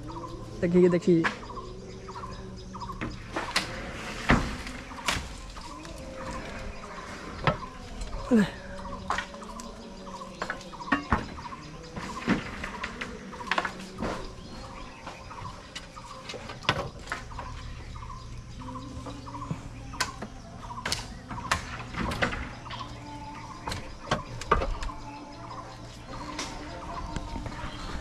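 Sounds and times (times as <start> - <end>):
roof tiles knocking and clinking: 10.2 - 14.1.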